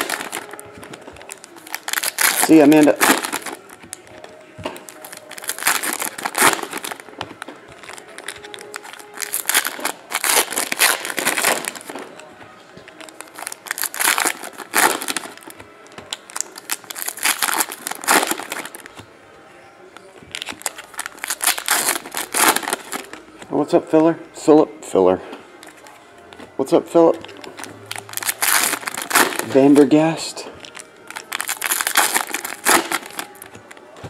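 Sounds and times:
foil wrappers crinkling: 0.0 - 19.0, 20.2 - 23.3, 26.8 - 33.8
cards being shuffled: 27.2 - 29.8, 31.4 - 33.8.

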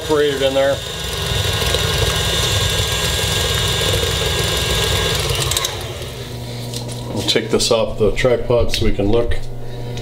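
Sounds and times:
stand mixer running: 0.0 - 7.0.

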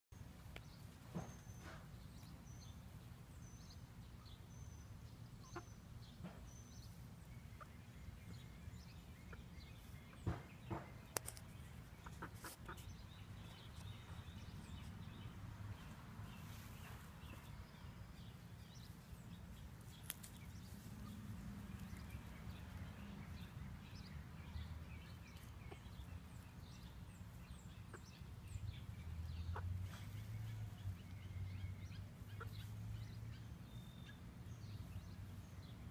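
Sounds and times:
hens clucking softly: 5.4 - 5.9, 11.7 - 15.0, 32.1 - 32.9.

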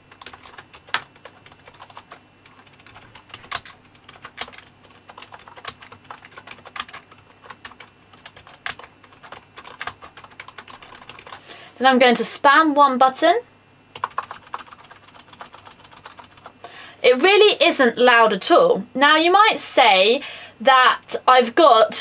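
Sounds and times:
keyboard typing: 0.1 - 11.4, 13.9 - 16.6.

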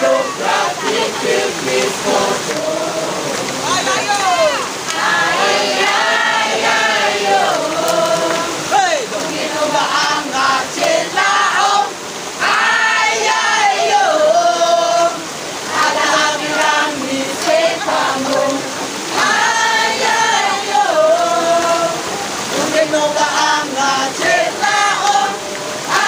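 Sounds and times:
choir of men and women singing: 0.0 - 26.0.

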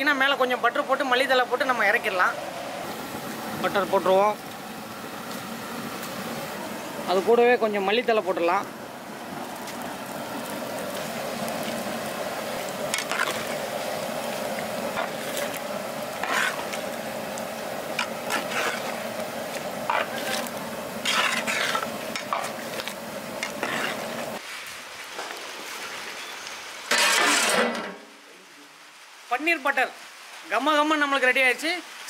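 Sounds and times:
curry bubbling: 1.4 - 24.4
metal ladle scraping pot: 12.9 - 13.5, 16.2 - 16.8, 18.0 - 19.0, 19.9 - 24.3, 26.9 - 27.9.

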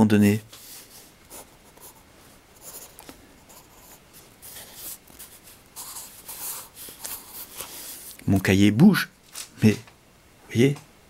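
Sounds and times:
pencil scratching on paper: 2.6 - 8.1.

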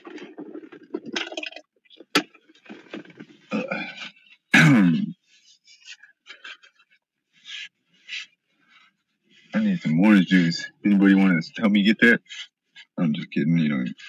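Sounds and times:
man's wordless vocal noises: 3.5 - 5.2.

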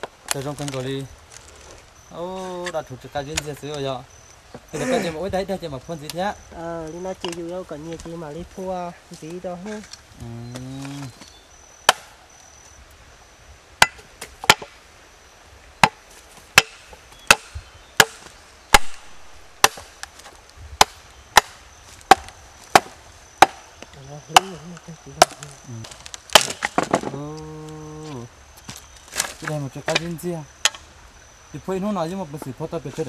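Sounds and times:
high insect whine: 0.0 - 33.0
machete chopping wood: 11.9 - 12.2, 13.8 - 14.8, 15.8 - 23.7, 24.3 - 24.6, 25.2 - 27.4.

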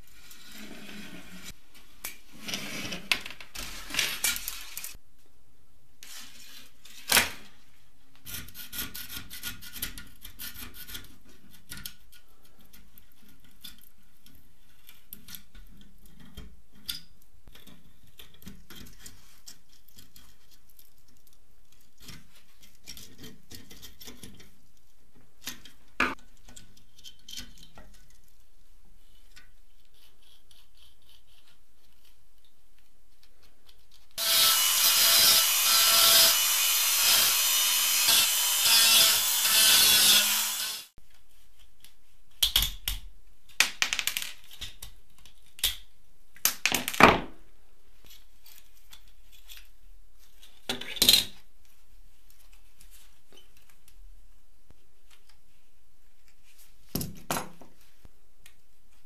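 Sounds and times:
handheld rotary tool grinding: 34.2 - 41.0.

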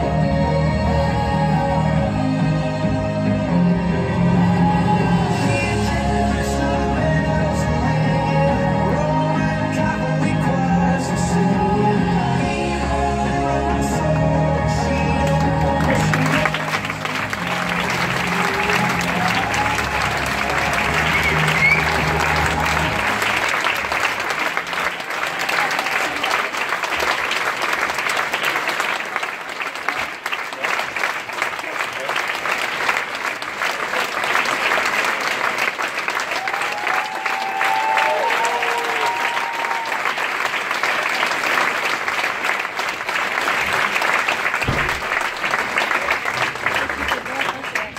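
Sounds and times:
audience applauding: 15.2 - 47.9.

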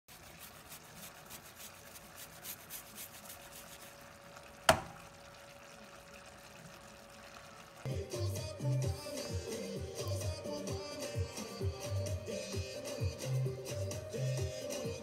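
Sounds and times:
simmering sauce hiss: 7.8 - 15.0
music: 7.9 - 15.0.

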